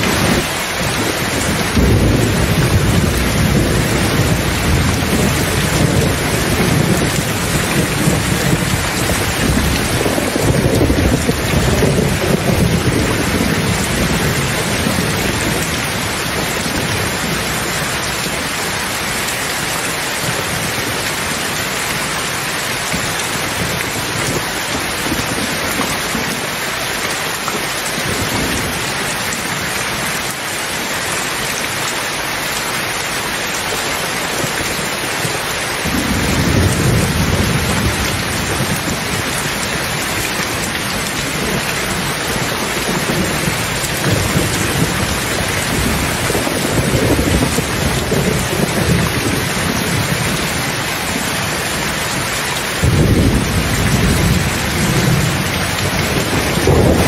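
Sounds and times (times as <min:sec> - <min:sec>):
rolling thunder rumble: 0:00.0 - 0:18.3, 0:35.8 - 0:52.2, 0:52.8 - 0:57.0
heavy rain: 0:00.0 - 0:57.0.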